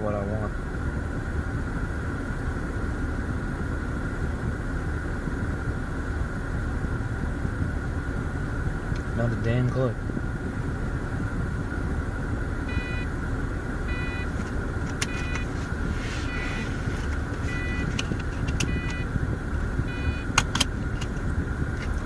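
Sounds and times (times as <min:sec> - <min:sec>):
road and engine rumble: 0:00.0 - 0:22.0
short electronic beep: 0:12.7 - 0:13.1, 0:13.9 - 0:14.3, 0:15.1 - 0:15.5, 0:16.2 - 0:16.7, 0:17.5 - 0:17.9, 0:18.7 - 0:19.1, 0:19.9 - 0:20.3
sharp clicks: 0:20.3 - 0:21.2.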